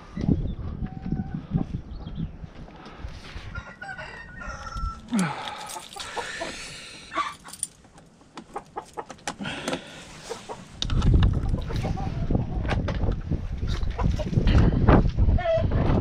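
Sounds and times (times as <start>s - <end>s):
rooster crowing: 3.5s - 5.5s
chickens clucking: 5.7s - 7.4s, 8.2s - 16.0s.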